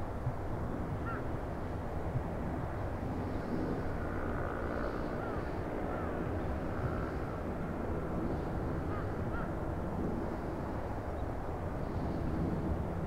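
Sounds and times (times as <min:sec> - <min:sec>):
airliner engines low rumble: 0:00.0 - 0:13.0.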